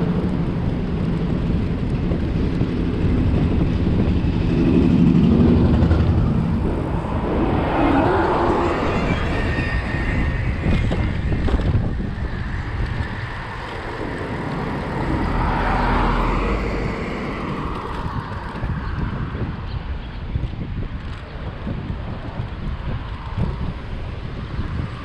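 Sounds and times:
motor traffic passing: 0:00.0 - 0:19.6
wind rushing over microphone: 0:00.0 - 0:25.0.

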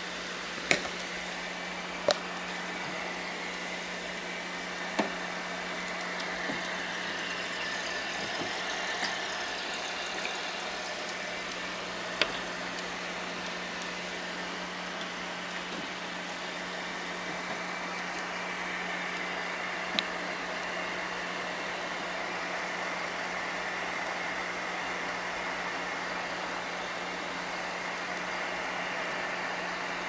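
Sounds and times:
machine humming: 0:00.0 - 0:23.9.

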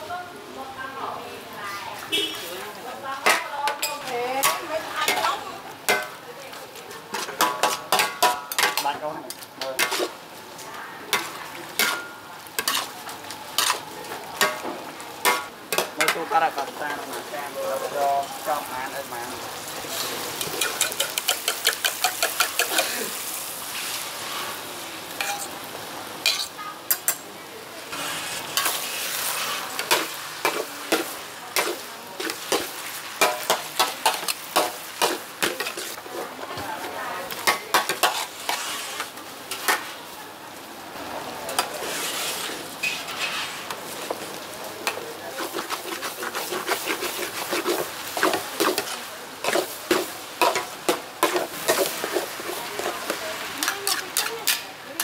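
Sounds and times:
noodles sizzling in a wok: 0:00.0 - 0:55.0
metal spatulas scraping a pan: 0:03.2 - 0:06.2, 0:07.1 - 0:10.2, 0:11.1 - 0:13.0, 0:13.6 - 0:13.8, 0:20.0 - 0:24.4, 0:25.2 - 0:25.5, 0:26.2 - 0:27.2, 0:27.9 - 0:39.9, 0:41.5 - 0:44.2, 0:44.8 - 0:54.8.

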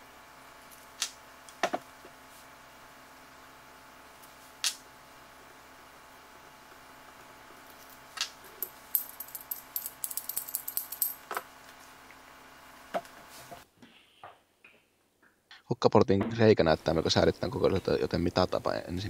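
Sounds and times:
small metal parts clinking: 0:08.6 - 0:11.3.

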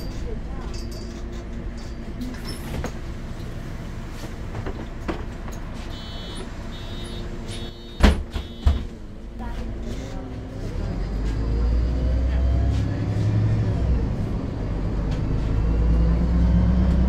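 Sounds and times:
bus diesel engine running: 0:00.0 - 0:17.0
high beeping tone: 0:06.0 - 0:08.8
loud thump: 0:08.0 - 0:08.9.

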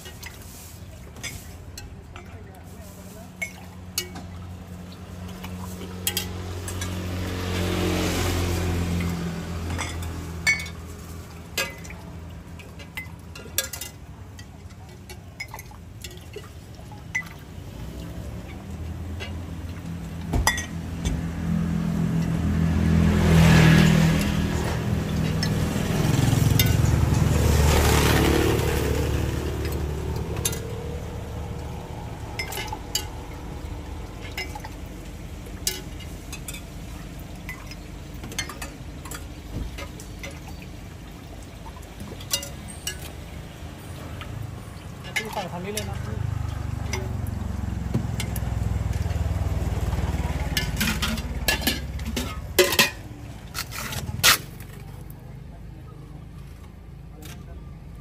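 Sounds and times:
vehicle passing by: 0:02.4 - 0:12.8, 0:17.4 - 0:58.0
glass mugs and ladle clinking: 0:03.4 - 0:04.4, 0:05.8 - 0:07.0, 0:09.7 - 0:10.9, 0:11.5 - 0:17.4, 0:18.4 - 0:20.8, 0:32.4 - 0:33.3, 0:34.2 - 0:34.9, 0:35.5 - 0:36.7, 0:37.4 - 0:40.7, 0:42.1 - 0:43.2, 0:50.4 - 0:53.8.

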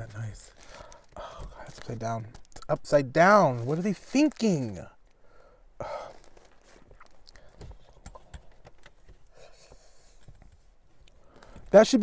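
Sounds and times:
soft rustles: 0:06.0 - 0:11.8.

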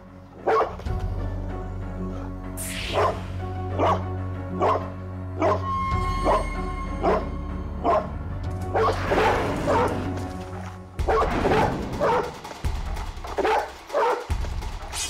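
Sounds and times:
background music with bass: 0:00.0 - 0:15.0
dog barking aggressively: 0:00.4 - 0:00.8, 0:03.8 - 0:04.0, 0:04.6 - 0:04.8, 0:07.0 - 0:08.1, 0:08.7 - 0:10.1, 0:11.0 - 0:12.5, 0:13.3 - 0:14.3.

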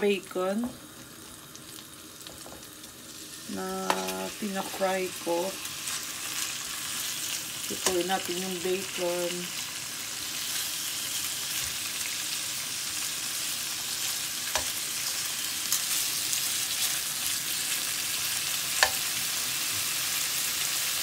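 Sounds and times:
bacon sizzling in a pan: 0:00.0 - 0:21.0.

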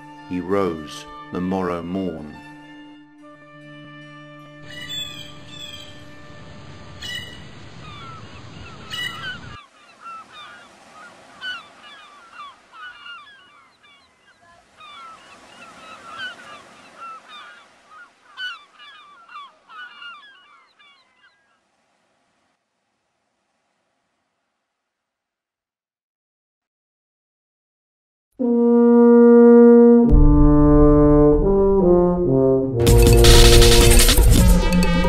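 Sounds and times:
music with sustained notes: 0:00.0 - 0:07.5, 0:28.4 - 0:35.0
flock of birds calling: 0:04.6 - 0:06.2, 0:06.9 - 0:21.6.

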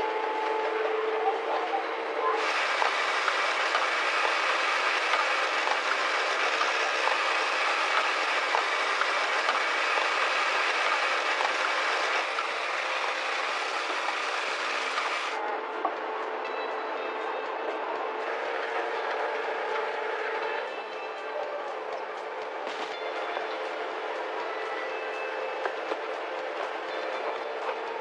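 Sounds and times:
machinery hiss: 0:02.4 - 0:15.4.

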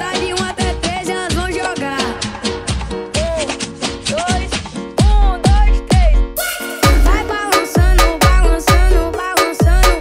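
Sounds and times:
melodic synth loop: 0:05.0 - 0:10.0.

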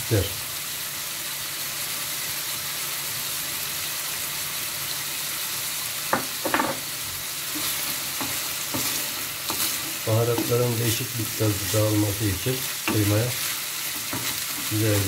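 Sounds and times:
meat sizzling in a frying pan: 0:00.0 - 0:15.0
wooden spoon scraping a pan: 0:07.5 - 0:15.0.

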